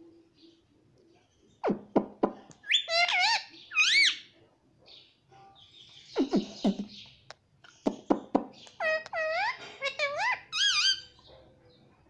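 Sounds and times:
parakeet calling: 1.7s - 4.3s, 5.8s - 11.3s.

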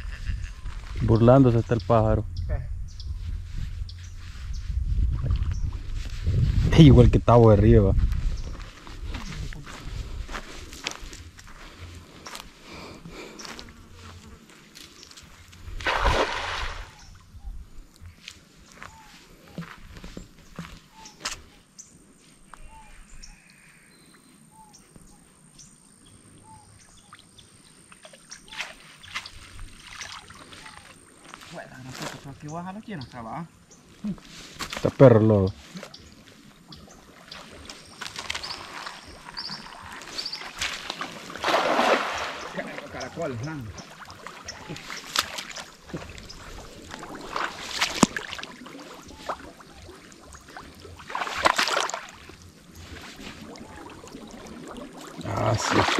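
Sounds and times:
outdoor ambience: 0.0s - 55.9s
steps rustling in vegetation: 2.9s - 7.3s, 7.9s - 17.0s, 33.8s - 50.4s, 51.4s - 53.8s
footsteps sloshing through mud: 7.9s - 17.2s, 28.0s - 32.3s, 35.6s - 55.9s
bird calling: 18.7s - 31.5s, 35.5s - 41.1s, 41.7s - 50.6s.

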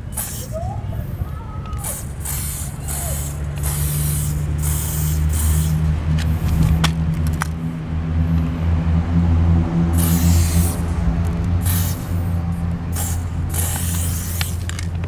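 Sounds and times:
spray can hissing: 0.1s - 0.6s, 1.8s - 5.9s, 10.0s - 10.8s, 11.6s - 12.1s, 12.9s - 15.0s.

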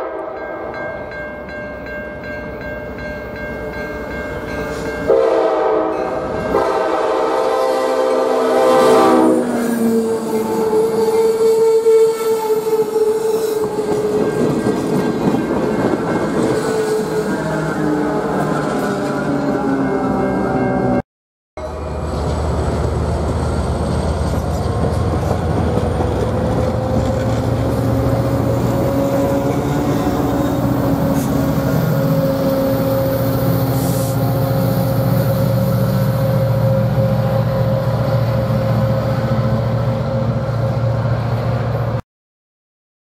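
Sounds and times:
train coaches rolling over rails: 21.6s - 41.8s.

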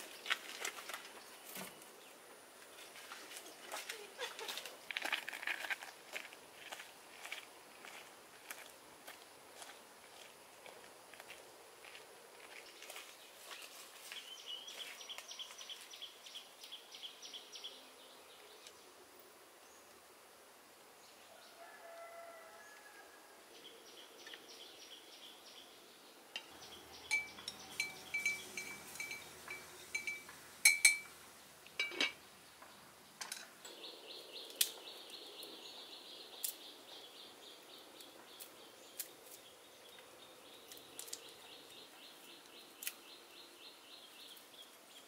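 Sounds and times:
birds calling: 26.4s - 31.1s.

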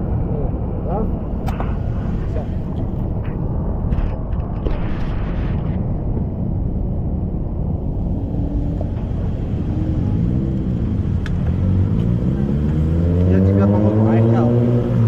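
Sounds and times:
traffic rumble: 0.0s - 15.0s
vehicle accelerating: 7.7s - 15.0s.

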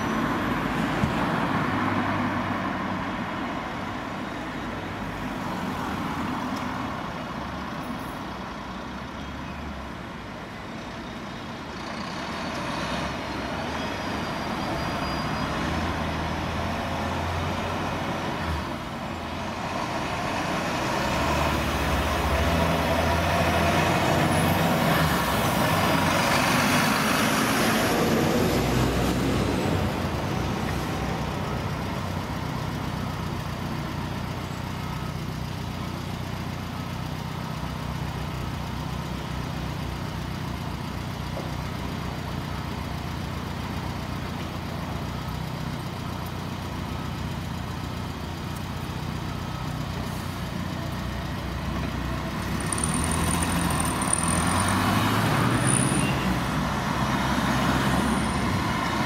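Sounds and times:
low diesel engine hum: 0.0s - 59.0s
truck passing by: 11.6s - 35.0s, 48.8s - 59.0s.

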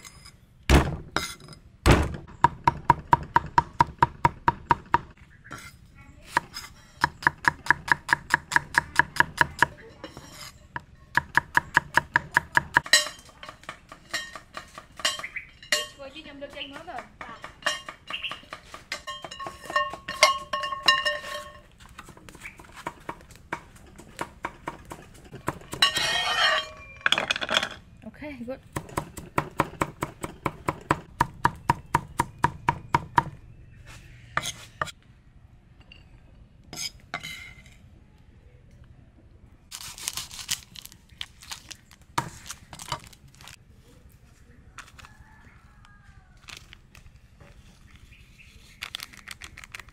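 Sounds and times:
kitchenware clinking: 12.8s - 21.7s, 25.2s - 27.8s.

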